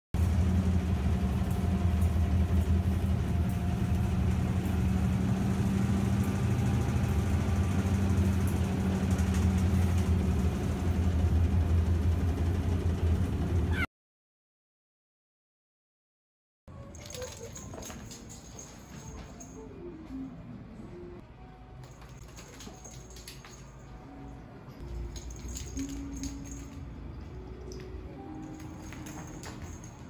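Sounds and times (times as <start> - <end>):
kitten rising cry: 13.7 - 13.9.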